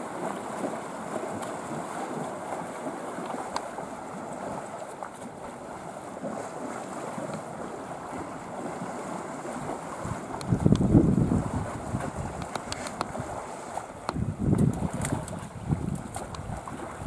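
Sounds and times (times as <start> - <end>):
water rushing: 0.0 - 17.0
wind: 0.0 - 17.0.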